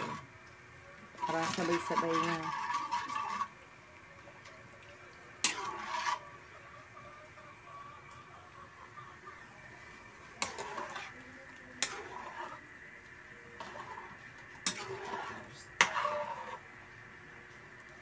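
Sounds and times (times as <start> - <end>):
pot being stirred scraping: 0.0 - 0.3, 1.1 - 3.6, 5.4 - 6.9, 9.4 - 16.8.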